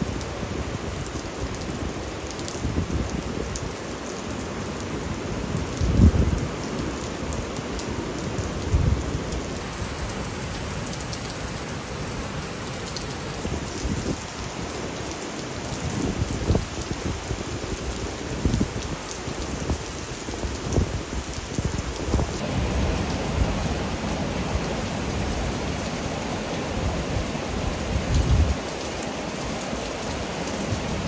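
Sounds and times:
steady rain falling: 0.0s - 31.0s.

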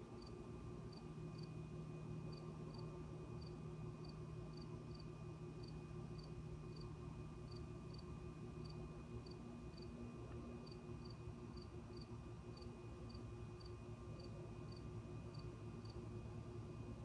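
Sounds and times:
low steady hum: 0.0s - 17.0s
cricket chirping: 0.2s - 1.6s, 3.4s - 6.9s, 7.5s - 8.0s.

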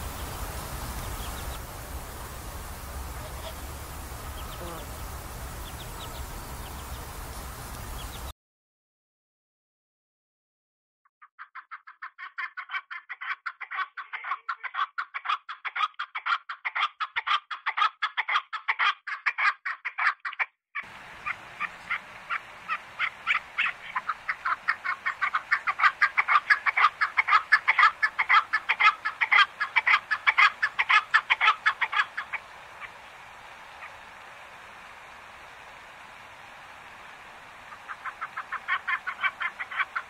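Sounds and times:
geese calling: 0.0s - 8.3s, 20.8s - 40.0s.

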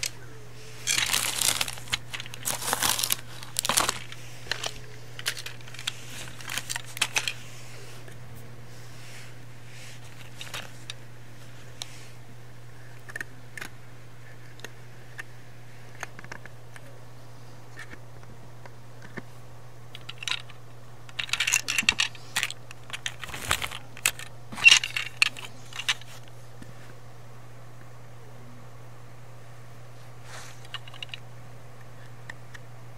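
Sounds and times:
plastic toy clicks and clatters: 0.8s - 7.4s, 19.9s - 26.1s.

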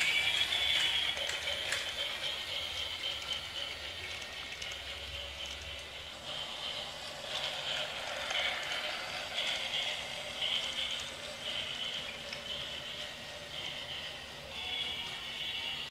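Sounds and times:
toy train rattling on track: 0.0s - 15.9s.

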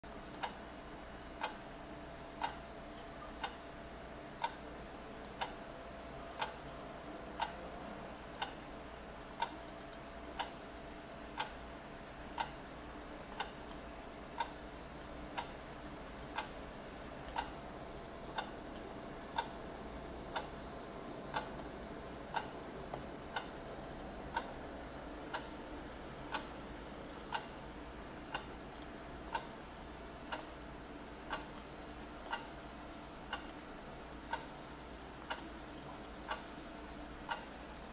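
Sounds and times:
faint steady hum: 0.0s - 37.9s
clock ticking: 0.3s - 0.6s, 1.4s - 1.6s, 2.3s - 2.7s, 3.3s - 3.6s, 4.4s - 5.6s, 6.3s - 6.8s, 7.4s - 7.6s, 8.3s - 8.6s, 9.3s - 10.6s, 11.3s - 11.7s, 12.3s - 12.6s, 13.3s - 14.7s, 15.3s - 15.6s, 16.2s - 16.6s, 17.2s - 20.6s, 21.3s - 21.7s, 22.3s - 24.6s, 25.3s - 27.6s, 28.2s - 30.6s, 31.2s - 34.6s, 35.2s - 36.6s, 37.3s - 37.5s.

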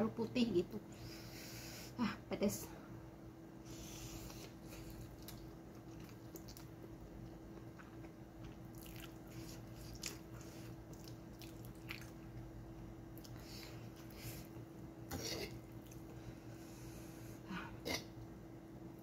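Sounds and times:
chewing: 4.2s - 6.8s, 7.5s - 12.4s.

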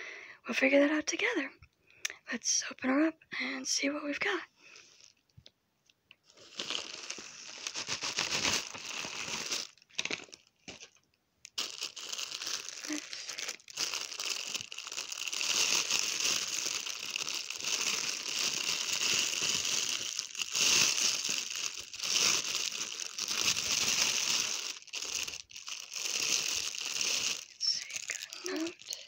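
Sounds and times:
plastic bag crinkling: 6.3s - 29.0s.

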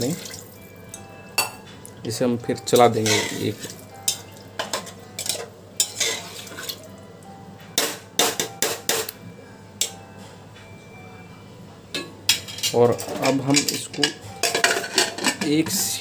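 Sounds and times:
metal spoon clinking and scraping pot: 2.7s - 6.8s, 12.3s - 16.0s.

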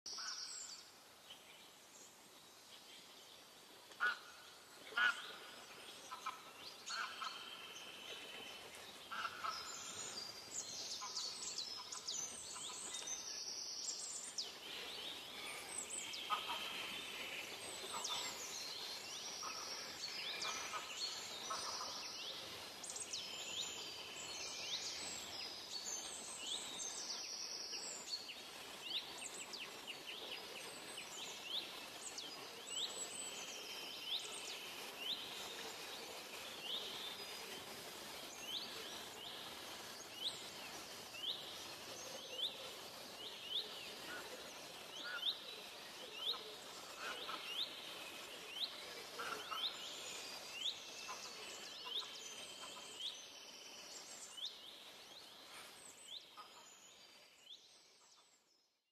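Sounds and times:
birds chirping and calling: 4.9s - 28.2s.

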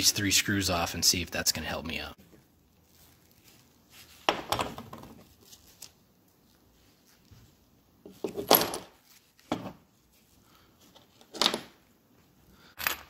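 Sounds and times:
metal parts clinking and knocking: 8.2s - 9.0s, 12.8s - 13.0s.

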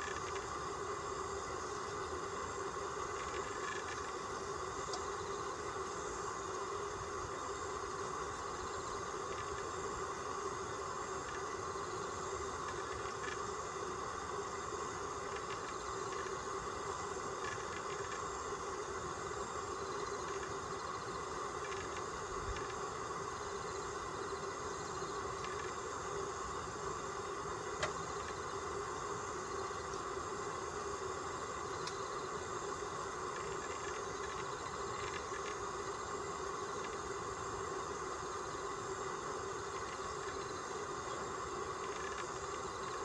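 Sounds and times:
faint high whine: 0.0s - 43.0s
steady mechanical hum: 0.0s - 43.0s
faint clicks: 4.8s - 5.1s, 31.8s - 32.0s.

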